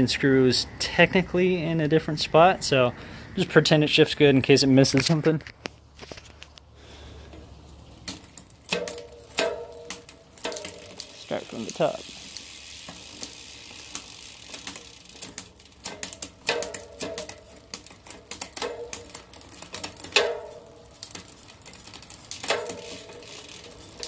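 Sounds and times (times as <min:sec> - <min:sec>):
bicycle chain clicking over cogs: 0:06.8 - 0:24.0
derailleur shifting clatter: 0:07.2 - 0:24.0.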